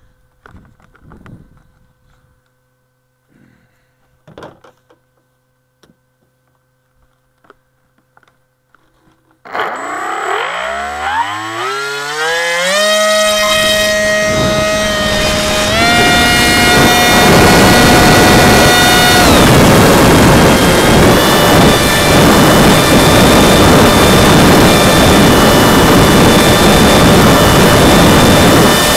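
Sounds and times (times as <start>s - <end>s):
electric motor and propeller whine: 9.5s - 28.9s
wind rushing over airframe: 13.2s - 28.9s.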